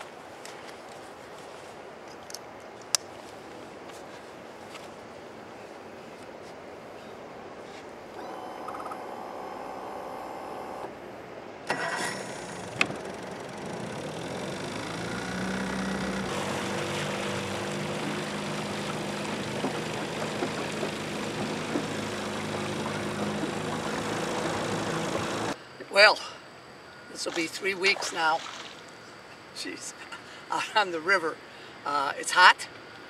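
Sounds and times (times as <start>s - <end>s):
outboard motor starting and running: 8.2s - 11.0s, 11.7s - 25.6s.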